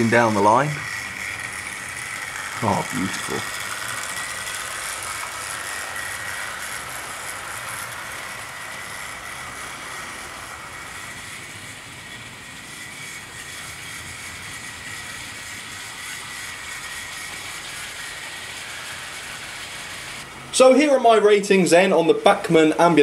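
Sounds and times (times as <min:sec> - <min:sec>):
model train motor whine: 0:00.0 - 0:23.0
wheels on rails: 0:00.0 - 0:23.0.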